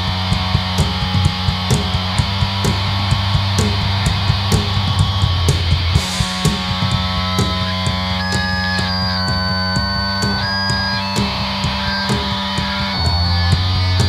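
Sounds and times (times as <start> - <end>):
guitar feedback whine: 0.0 - 14.0
punk band playing live: 0.0 - 14.0
cymbal crash: 2.8 - 8.5.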